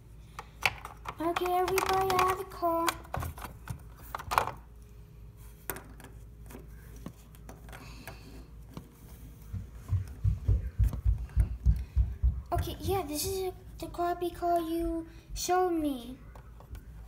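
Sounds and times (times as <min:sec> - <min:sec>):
plastic toy figures handled: 0:00.4 - 0:04.7, 0:05.4 - 0:09.3.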